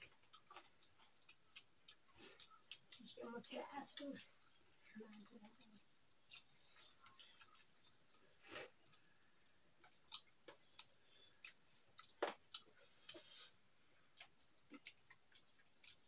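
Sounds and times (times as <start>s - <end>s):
chewing: 0.0s - 16.0s.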